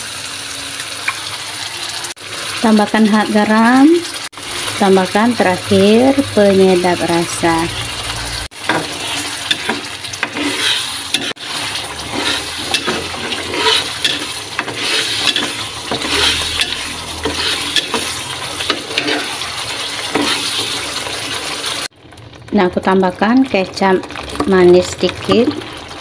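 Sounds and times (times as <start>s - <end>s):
paste sizzling in a wok: 0.0s - 26.0s
metal spoon scraping a pan: 8.0s - 21.8s.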